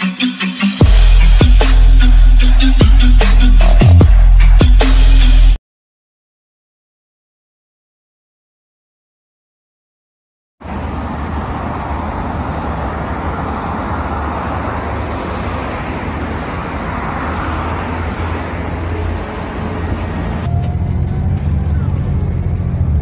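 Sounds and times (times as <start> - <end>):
city street traffic: 0.0 - 5.6, 10.6 - 23.0
bus engine rumbling: 10.6 - 23.0.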